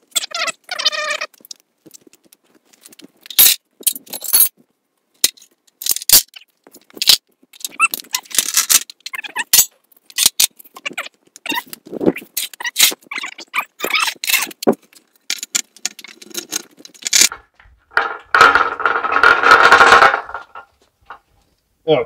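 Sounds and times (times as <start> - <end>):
metal clicks and clanks: 14.1 - 21.2
metal scraping on concrete: 16.0 - 21.2.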